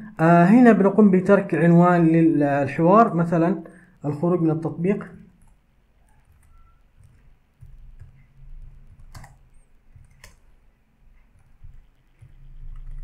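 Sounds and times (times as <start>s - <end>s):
sharp keyboard clicks: 5.4s - 10.6s, 11.2s - 13.0s
soft keyboard keystrokes: 5.4s - 13.0s.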